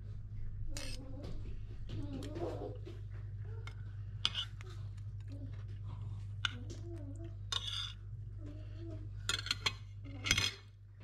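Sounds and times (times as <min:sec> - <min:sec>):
cutlery clinking on plate: 0:04.2 - 0:04.6, 0:09.3 - 0:10.7.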